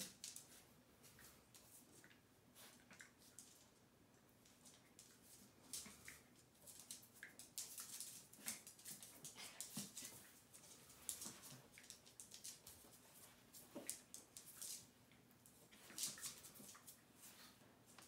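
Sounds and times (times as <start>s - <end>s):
dog claws clicking on hard floor: 4.5s - 14.9s.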